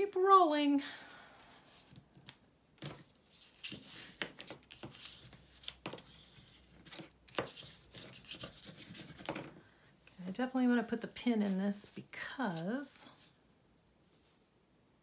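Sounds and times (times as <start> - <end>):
paper rustling: 1.7 - 9.6.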